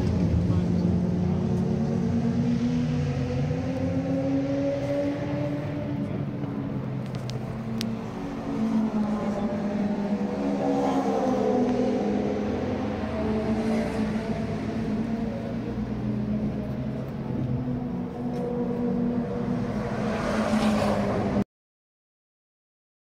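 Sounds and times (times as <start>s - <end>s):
racing car engines: 0.0s - 21.4s.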